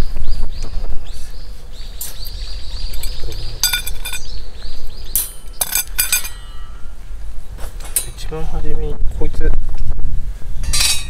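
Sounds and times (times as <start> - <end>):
metal rods clinking: 2.0 - 4.4, 5.1 - 6.8, 10.6 - 11.0.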